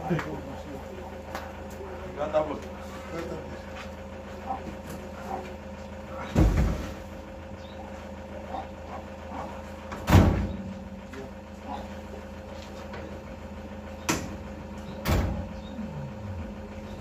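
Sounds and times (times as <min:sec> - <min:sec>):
low hum: 0:00.0 - 0:17.0
van doors slamming: 0:06.2 - 0:07.0, 0:09.9 - 0:10.7, 0:15.0 - 0:15.6.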